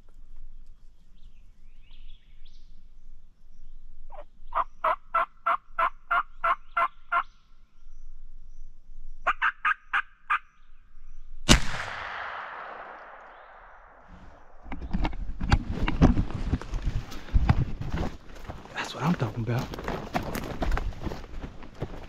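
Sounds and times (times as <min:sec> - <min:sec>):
turkey yelping: 0:09.3 - 0:10.4.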